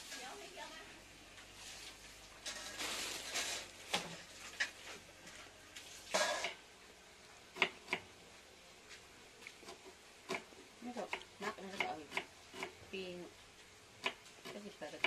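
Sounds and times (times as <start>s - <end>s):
leaves rustling: 1.5s - 6.2s.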